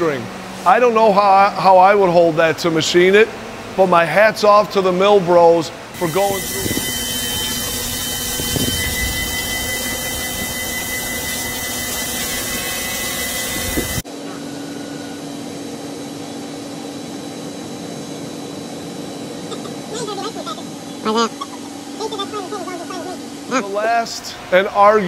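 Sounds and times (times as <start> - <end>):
low machine hum: 0.0 - 25.0
high steady whine: 5.9 - 25.0
coolant spray hiss: 6.0 - 8.8
milling machine cutting metal: 6.0 - 14.0.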